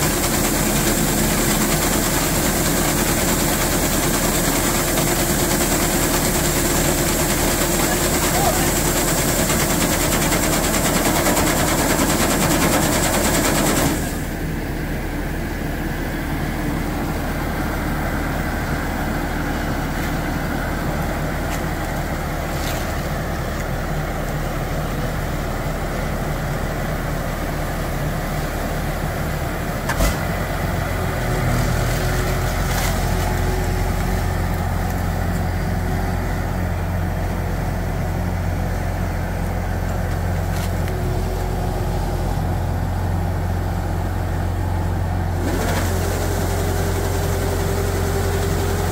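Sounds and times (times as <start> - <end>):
rice pouring with loud hiss: 0.0 - 14.3, 45.4 - 48.9
harvester engine running: 0.0 - 48.9.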